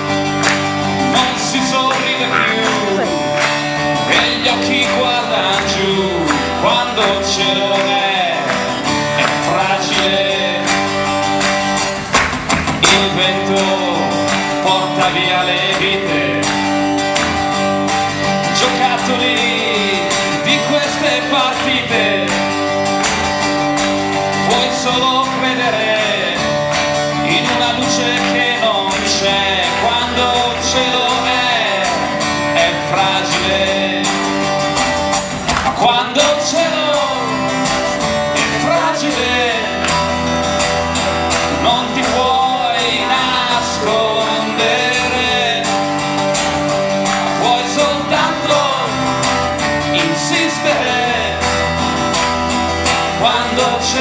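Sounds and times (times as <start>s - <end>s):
acoustic guitar strumming: 0.0s - 54.0s
man singing: 0.8s - 11.2s, 12.7s - 16.8s, 18.4s - 22.6s, 24.2s - 34.6s, 35.6s - 46.4s, 47.0s - 52.0s, 52.7s - 54.0s.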